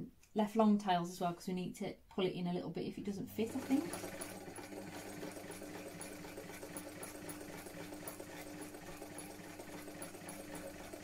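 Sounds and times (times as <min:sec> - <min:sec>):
electric sewing machine running: 0:03.4 - 0:11.0.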